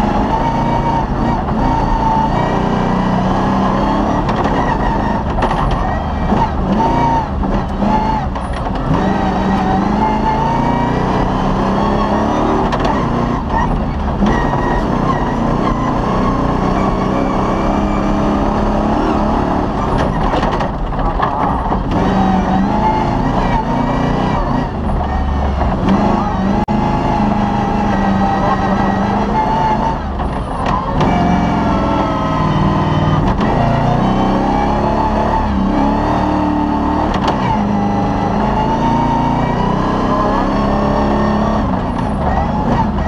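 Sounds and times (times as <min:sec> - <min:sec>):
car engine revving: 0:00.0 - 0:43.0.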